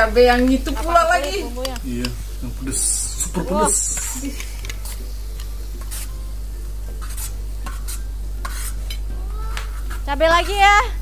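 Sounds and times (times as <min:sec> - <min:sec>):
food sizzling: 0:00.0 - 0:11.0
metal spatula scraping a wok: 0:05.8 - 0:06.2, 0:06.9 - 0:09.1, 0:09.7 - 0:10.6.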